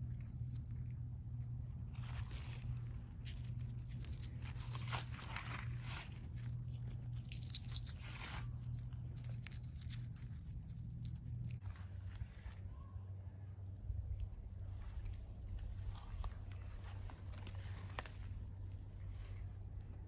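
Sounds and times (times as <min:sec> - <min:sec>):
steady low hum: 0:00.0 - 0:20.0
hand digging in soil: 0:01.8 - 0:12.4.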